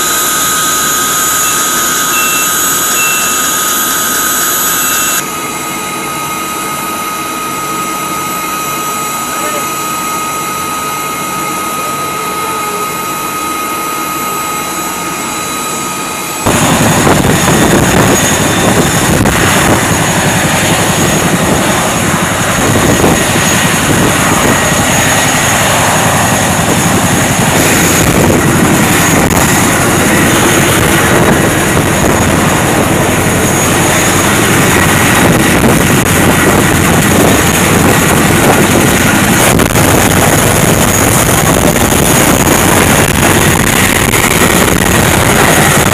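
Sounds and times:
aircraft turbine whine: 0:00.0 - 0:45.9
dense rushing noise: 0:16.4 - 0:45.9.

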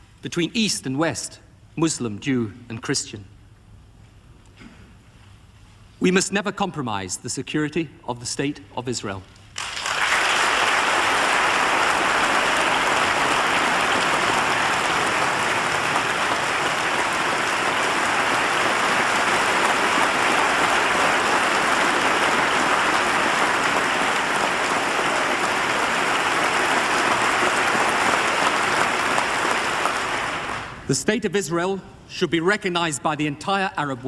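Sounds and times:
audience applauding: 0:09.6 - 0:30.8.

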